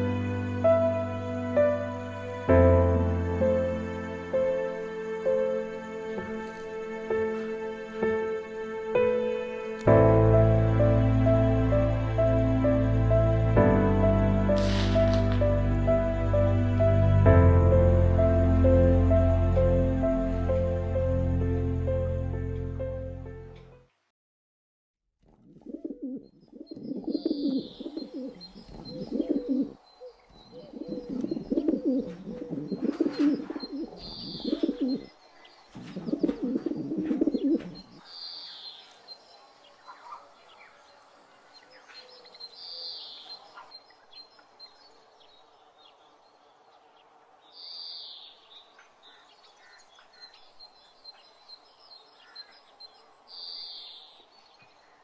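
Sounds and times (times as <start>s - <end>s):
faint outdoor ambience: 0.0s - 24.1s, 25.3s - 55.0s
bird short high call: 14.6s - 15.5s.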